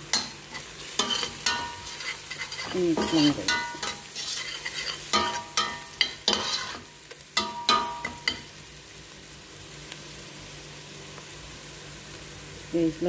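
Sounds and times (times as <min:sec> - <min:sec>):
food sizzling in oil: 0:00.0 - 0:13.0
spatula scraping and knocking a pot: 0:00.2 - 0:08.5.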